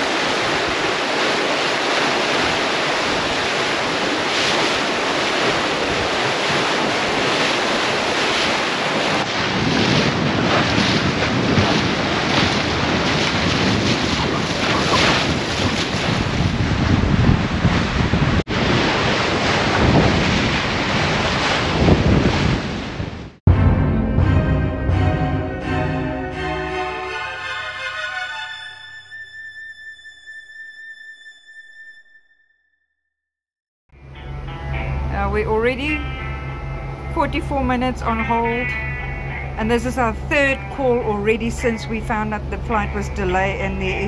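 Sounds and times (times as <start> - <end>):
water splashing along hull: 0.0 - 23.4, 35.6 - 44.0
wind buffeting microphone: 0.0 - 23.4
low rumble: 19.6 - 26.2.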